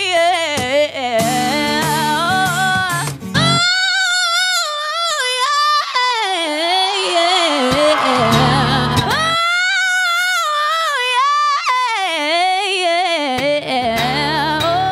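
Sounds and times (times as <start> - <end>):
woman singing vocal riff: 0.0 - 14.9
strummed acoustic guitar: 6.6 - 9.4.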